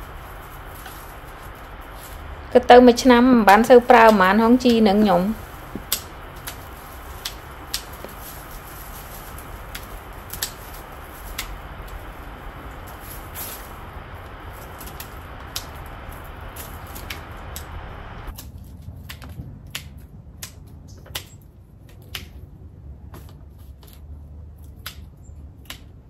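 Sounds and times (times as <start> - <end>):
steady hiss: 0.0 - 18.4
dry plant stems snapping: 0.0 - 22.5, 23.2 - 26.0.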